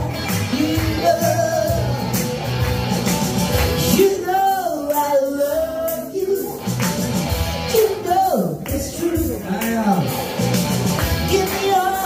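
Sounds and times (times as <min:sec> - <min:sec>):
man and woman singing blues: 0:00.0 - 0:02.2, 0:03.8 - 0:06.7, 0:11.2 - 0:12.0
guitar backing: 0:00.0 - 0:12.0.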